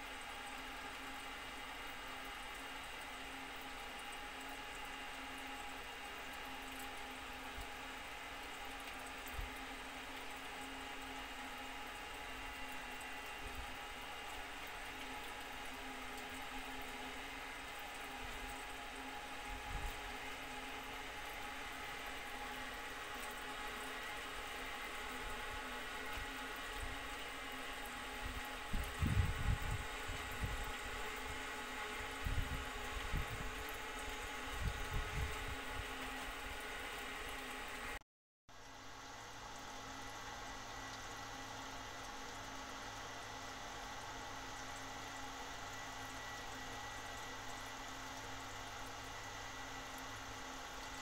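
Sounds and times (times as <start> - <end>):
aquarium filter water: 0.0 - 51.0
cooling fan hum: 0.0 - 51.0.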